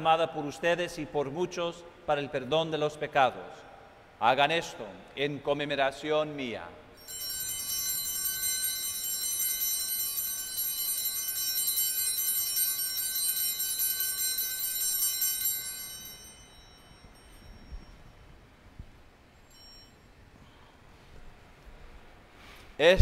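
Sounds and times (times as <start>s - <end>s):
altar bells ringing: 7.0s - 21.1s.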